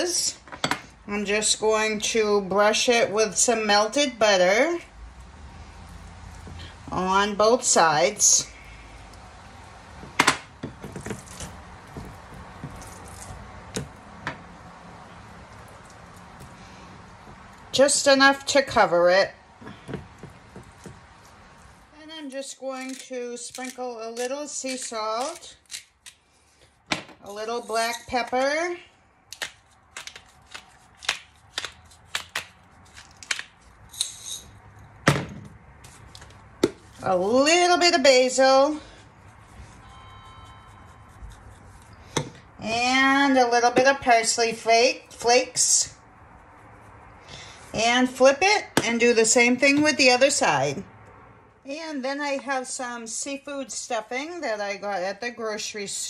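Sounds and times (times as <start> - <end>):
basting brush squishing butter: 40.5 - 42.0.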